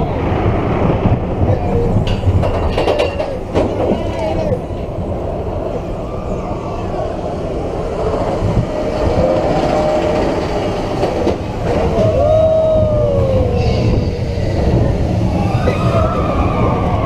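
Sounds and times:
roller coaster wheels rumbling: 0:00.0 - 0:17.0
roller coaster wheel squeal: 0:05.9 - 0:17.0.

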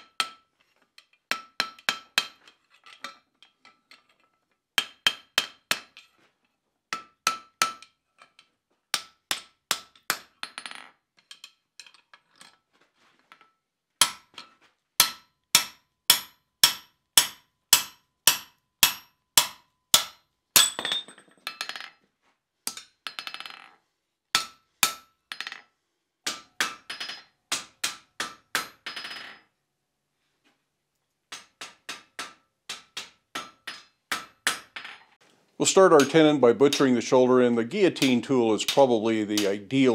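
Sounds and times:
hammer striking anvil: 0:04.8 - 0:05.9, 0:06.9 - 0:07.9, 0:09.0 - 0:10.3, 0:14.0 - 0:21.0, 0:24.4 - 0:25.1, 0:26.3 - 0:29.0, 0:31.3 - 0:34.8, 0:36.0 - 0:37.1, 0:37.8 - 0:39.9.

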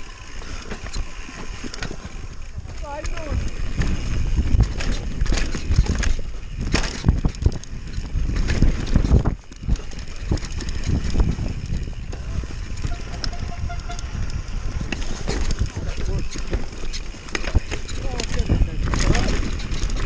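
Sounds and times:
mountain bike clattering on dirt: 0:00.0 - 0:20.0
wind rumble on microphone: 0:00.0 - 0:20.0.

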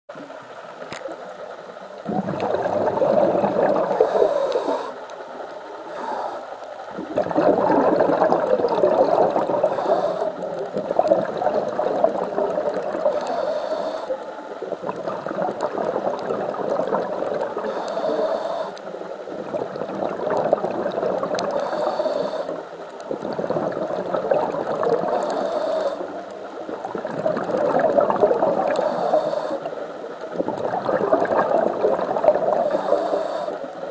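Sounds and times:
exhaust bubbling underwater: 0:02.0 - 0:05.0, 0:06.9 - 0:13.6, 0:14.5 - 0:33.9
regulator inhale hiss: 0:03.9 - 0:06.9, 0:09.1 - 0:10.7, 0:13.0 - 0:14.6, 0:17.5 - 0:19.2, 0:21.4 - 0:23.1, 0:25.0 - 0:26.6, 0:28.7 - 0:30.0, 0:32.5 - 0:33.9.

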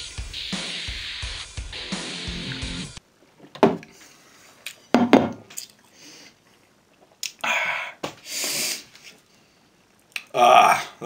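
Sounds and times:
dishes knocking on tabletop: 0:05.0 - 0:05.4.

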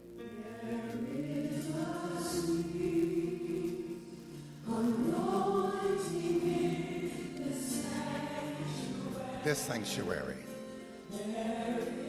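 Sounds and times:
gospel choir singing: 0:00.2 - 0:12.0.

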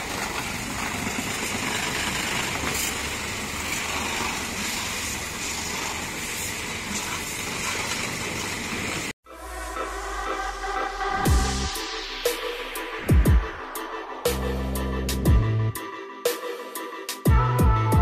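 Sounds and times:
pressure washer spray hissing: 0:00.8 - 0:09.1.

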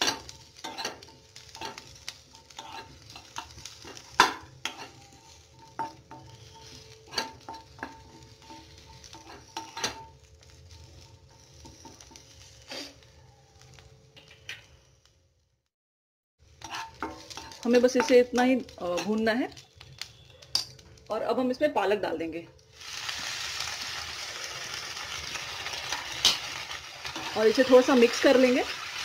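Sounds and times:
spatula scraping and knocking pan: 0:00.0 - 0:12.7, 0:16.6 - 0:19.9, 0:25.7 - 0:28.5
vegetables sizzling in oil: 0:00.0 - 0:15.0, 0:16.4 - 0:29.0.

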